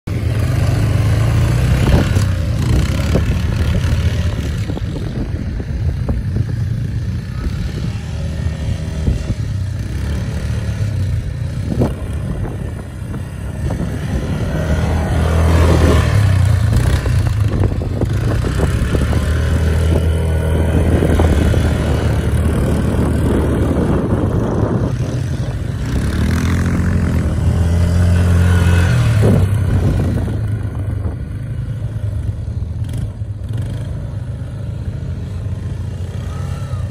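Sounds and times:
quad bike engine revving: 0.1s - 36.9s.

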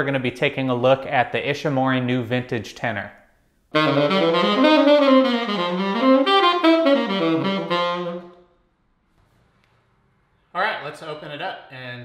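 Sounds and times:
tenor saxophone melody: 3.7s - 8.5s.

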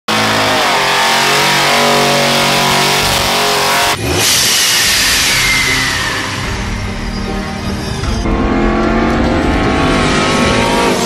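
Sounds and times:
truck engine revving hard: 0.1s - 11.0s
rising sweep sound effect: 3.7s - 11.0s.

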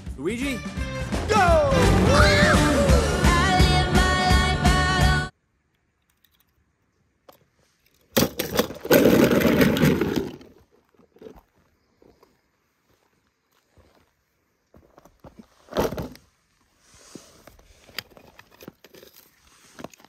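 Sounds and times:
music: 0.0s - 5.3s.

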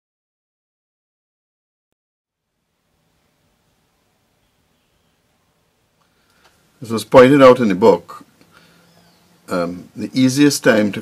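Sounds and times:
faint click: 6.0s - 6.6s.

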